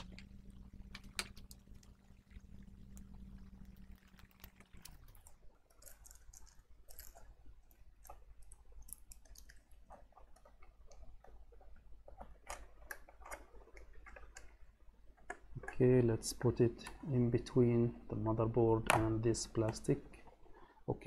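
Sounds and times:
low hum: 0.0s - 9.2s.

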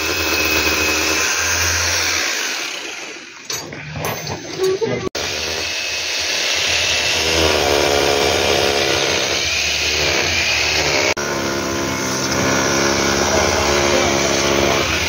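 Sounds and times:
motor running loudly: 5.2s - 15.0s.

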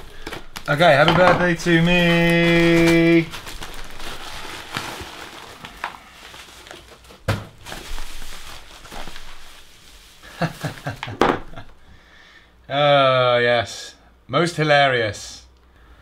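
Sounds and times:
cardboard and plastic crinkling: 0.0s - 11.8s.

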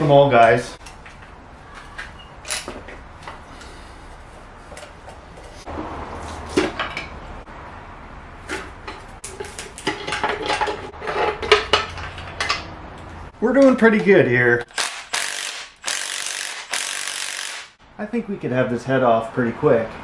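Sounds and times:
metal cover scraping: 8.6s - 12.8s.

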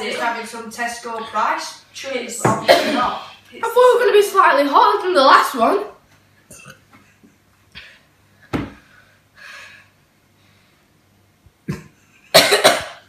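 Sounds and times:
boy coughing: 2.6s - 3.2s, 12.3s - 13.0s.

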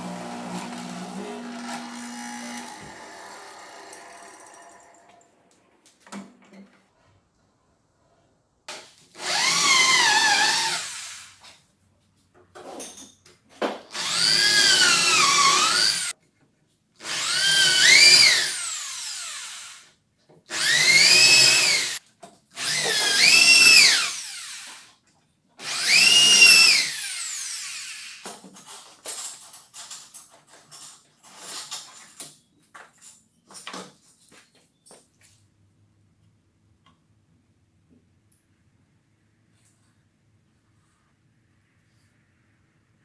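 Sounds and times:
electric drill boring into wood: 0.0s - 5.4s, 9.2s - 11.4s, 13.9s - 16.1s, 17.0s - 19.9s, 20.5s - 22.0s, 22.6s - 24.9s, 25.6s - 28.2s.

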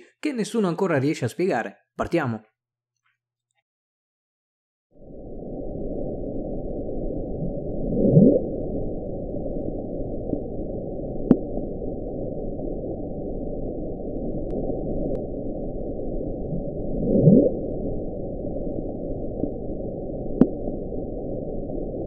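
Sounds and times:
low rushing noise: 5.0s - 22.0s.

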